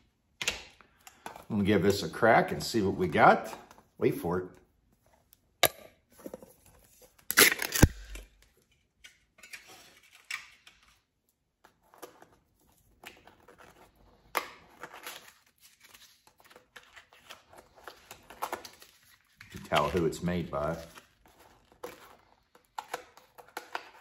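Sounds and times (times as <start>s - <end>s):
paper rustling and tearing: 11.8s - 24.0s.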